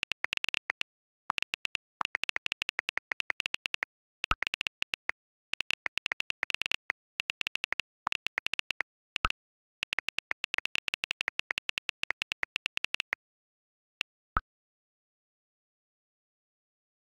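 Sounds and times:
phone keyboard clicks: 0.0s - 13.2s.

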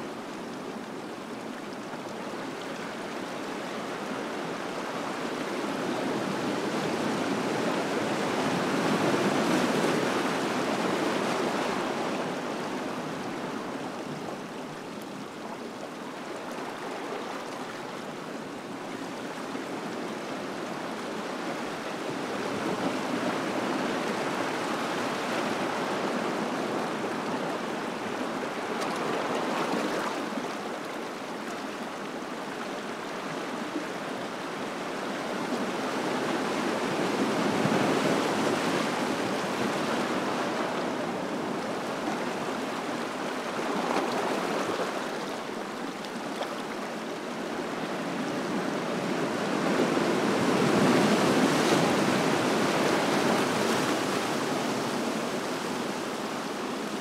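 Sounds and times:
ocean waves washing among rocks: 35.7s - 57.0s.

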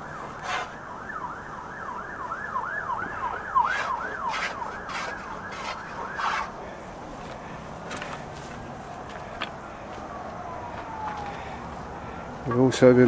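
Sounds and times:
siren yelping: 0.0s - 6.6s, 9.6s - 12.4s
tool scraping wood: 0.3s - 0.8s, 3.6s - 6.6s.

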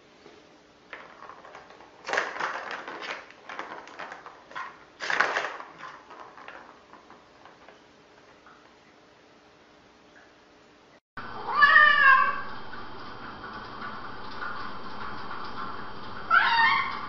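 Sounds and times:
plastic ball rattling in track toy: 0.9s - 7.8s.

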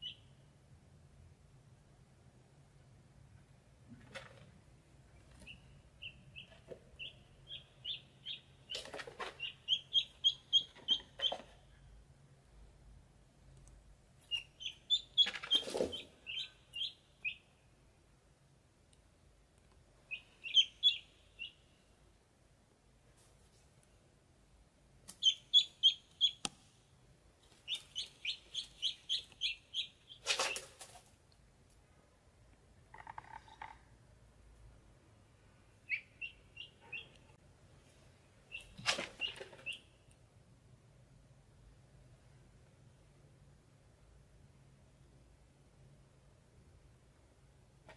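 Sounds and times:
ducklings peeping: 0.0s - 0.4s, 5.3s - 11.5s, 14.2s - 17.5s, 20.1s - 21.6s, 25.1s - 26.5s, 27.5s - 30.9s, 35.8s - 37.4s, 38.5s - 40.0s.

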